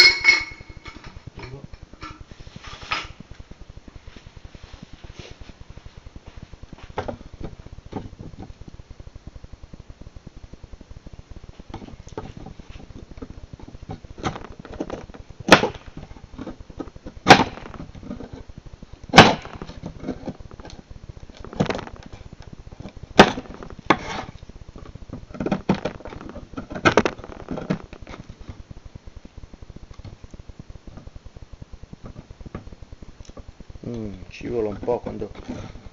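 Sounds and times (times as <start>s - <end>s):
knife striking wood: 19.2s - 19.6s
knife cutting and scraping wood: 23.2s - 24.4s.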